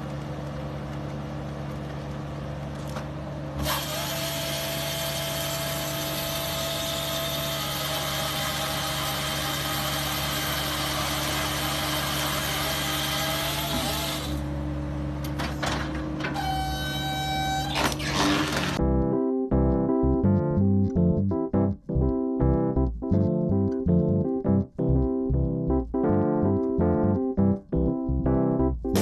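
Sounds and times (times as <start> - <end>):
saw cutting through log: 3.6 - 14.4, 16.6 - 18.8
short machine whine: 16.2 - 18.8.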